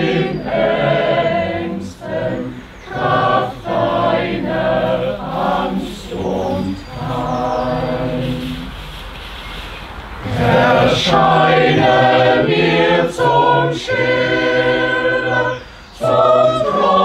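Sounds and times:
choir singing a cappella: 0.0s - 8.9s, 10.2s - 17.0s
breaths: 15.6s - 16.0s.

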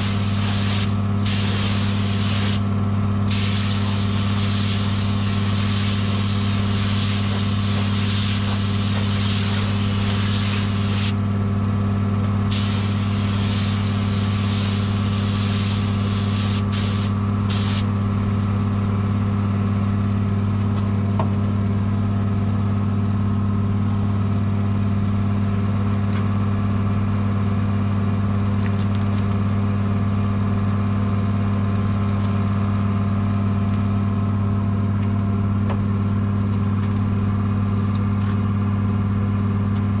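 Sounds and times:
spray gun hissing: 0.0s - 2.6s, 3.3s - 11.2s, 12.5s - 17.9s
low motor hum: 0.0s - 40.0s.

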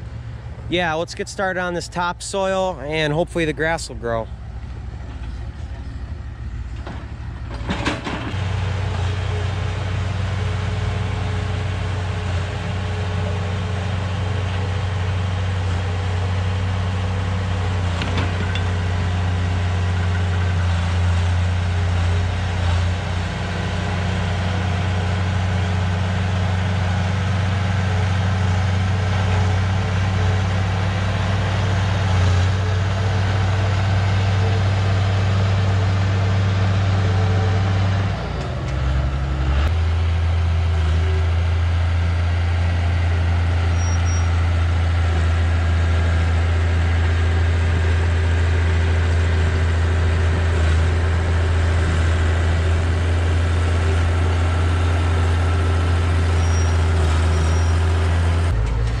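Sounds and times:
heavy machinery diesel engine: 0.0s - 59.0s.

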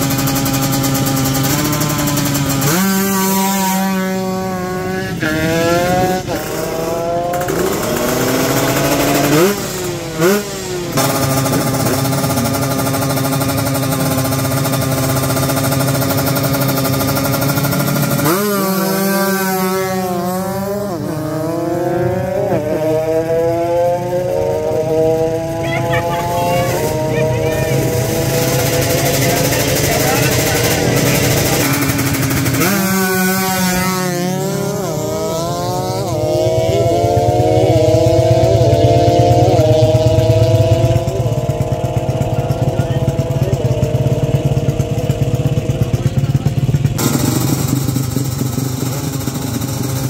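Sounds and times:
motorcycle engine revving: 0.0s - 50.0s.

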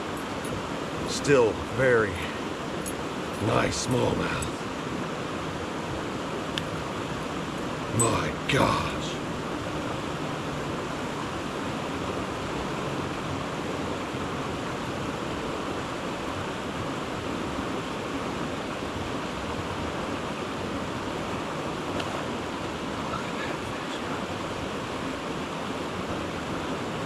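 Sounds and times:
creek water rushing over rocks: 0.0s - 27.0s.

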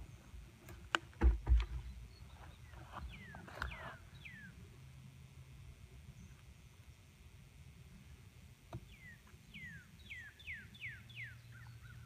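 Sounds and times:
light clicks and dull thumps: 0.6s - 3.8s.

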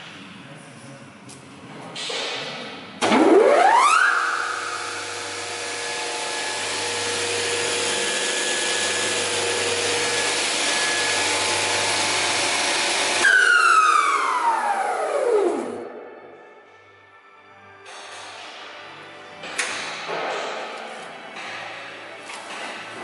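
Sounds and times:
spindle moulder whine: 3.0s - 16.3s.

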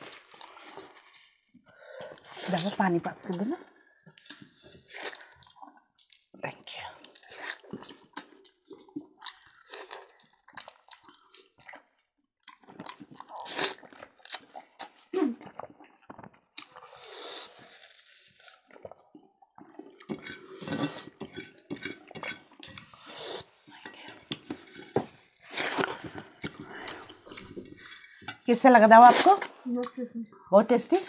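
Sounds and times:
people chewing and crunching: 0.0s - 30.4s
wet mouth sounds: 7.1s - 23.6s.

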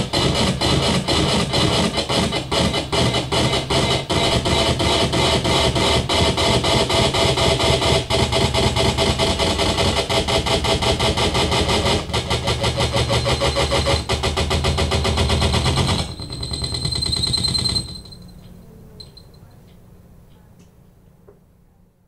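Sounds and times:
pulsing distorted electronic noise: 0.0s - 18.2s
steady high whine: 0.0s - 20.1s.

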